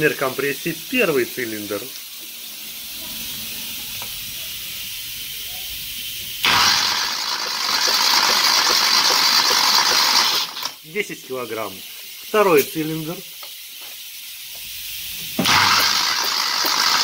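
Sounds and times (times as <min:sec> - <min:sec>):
engine cranking on starter: 0:06.4 - 0:10.8, 0:15.4 - 0:17.0.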